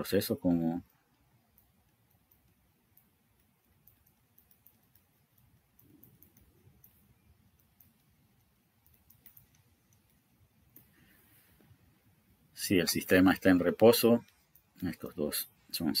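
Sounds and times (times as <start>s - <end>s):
stylus tapping on screen: 0.8s - 11.3s, 13.1s - 15.0s.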